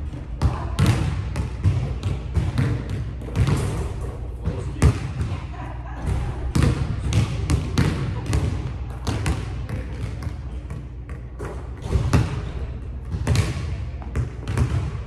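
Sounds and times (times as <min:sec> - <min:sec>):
basketball bouncing on wooden floor: 0:00.4 - 0:03.8, 0:06.5 - 0:15.0.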